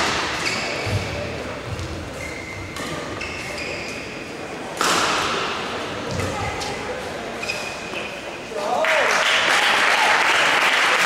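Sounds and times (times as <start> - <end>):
shoes squeaking on court: 0.0 - 4.4, 6.1 - 8.5
shuttlecock hit: 4.8 - 5.5.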